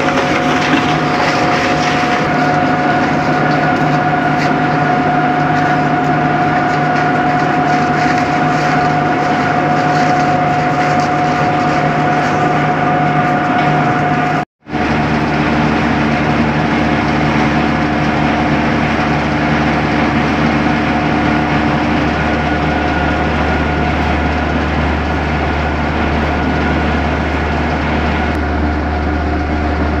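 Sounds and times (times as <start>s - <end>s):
rubber grinding machine drone: 0.0s - 30.0s.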